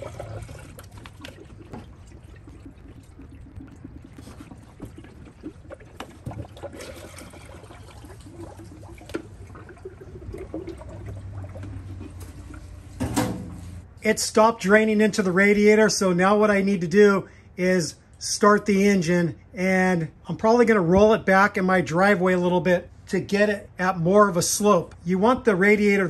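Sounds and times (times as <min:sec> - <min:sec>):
coolant pouring and trickling: 0:00.0 - 0:13.0.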